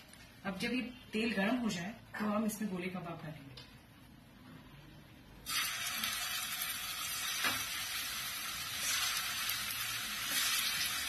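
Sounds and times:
food sizzling in hot oil: 5.4 - 11.0.

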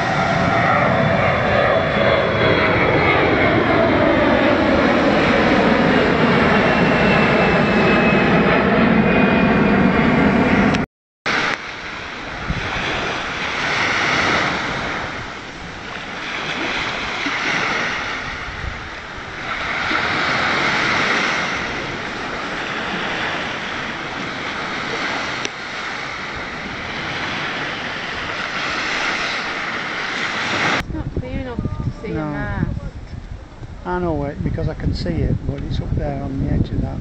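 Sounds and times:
aircraft engine drone: 0.0 - 37.0
surf breaking on beach: 11.3 - 31.0.

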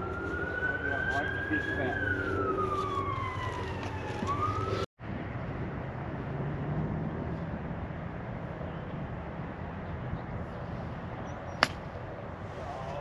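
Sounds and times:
distant siren wailing: 0.0 - 4.9
outdoor background noise: 0.0 - 13.0.

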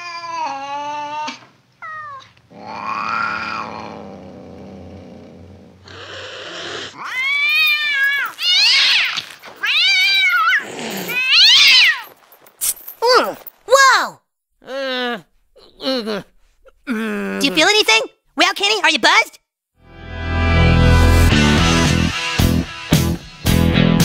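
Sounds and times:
cat yowling and meowing: 0.0 - 3.9, 6.0 - 12.1
cat hissing: 5.8 - 7.3.

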